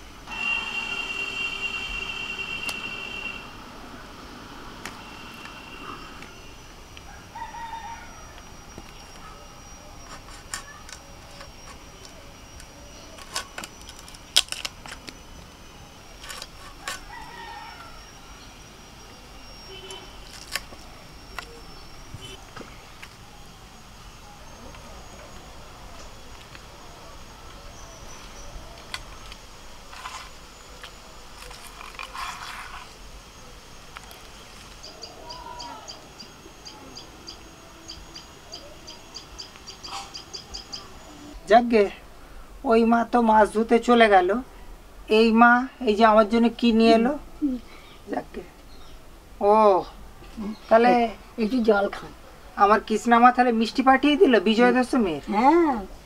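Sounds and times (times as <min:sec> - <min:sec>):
handling scrapes and rustles: 0:28.8 - 0:33.0.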